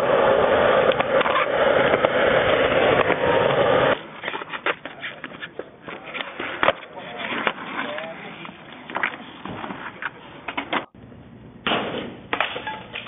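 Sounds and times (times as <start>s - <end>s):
skateboard wheels rolling on concrete: 0.0s - 11.0s
sharp skateboard clack: 0.8s - 7.6s.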